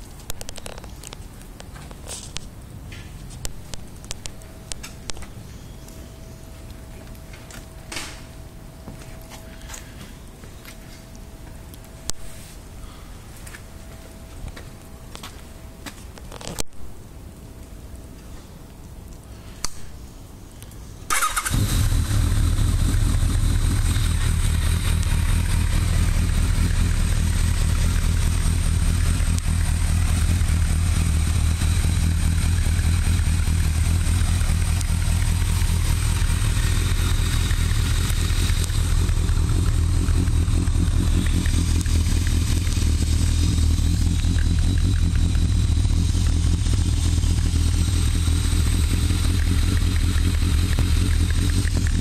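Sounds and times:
motorcycle engine idling: 21.1 - 52.0.

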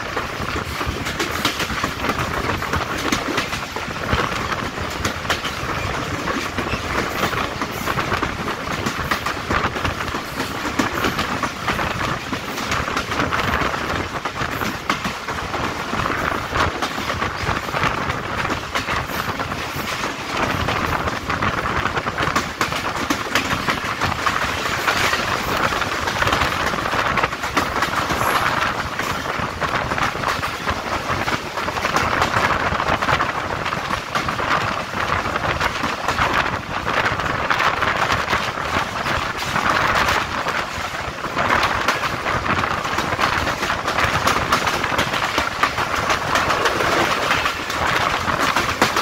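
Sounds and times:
train wheels rolling on track: 0.0 - 49.0
wheels clicking over rail joints: 0.0 - 49.0.

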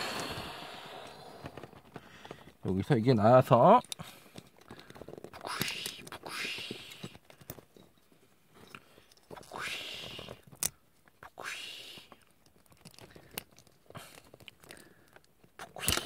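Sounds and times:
plastic parts scraping and rustling: 12.2 - 16.0.

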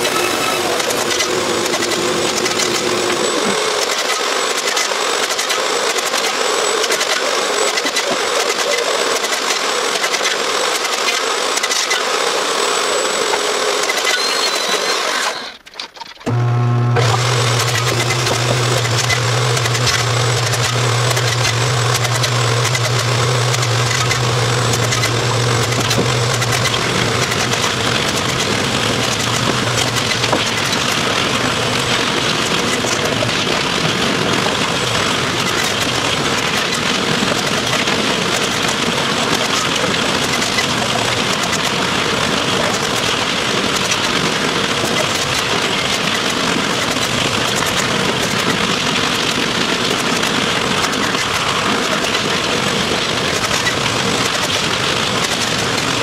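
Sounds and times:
shop machinery running: 0.0 - 56.0
low machine hum: 16.3 - 36.2.

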